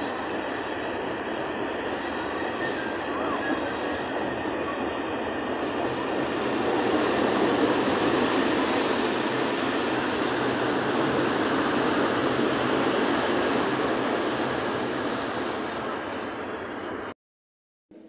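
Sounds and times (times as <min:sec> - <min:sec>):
train wheels rolling on rails: 0:00.0 - 0:17.1.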